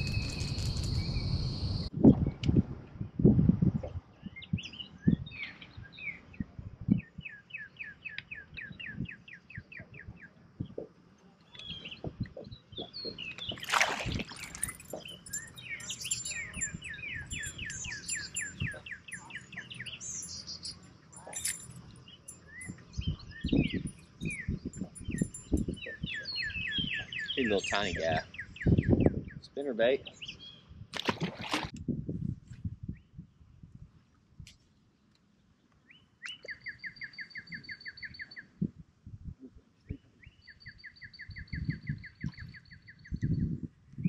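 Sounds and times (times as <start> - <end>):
songbirds singing and chirping: 0.0 - 31.7, 32.8 - 44.0
rapid bird trill: 12.8 - 29.0.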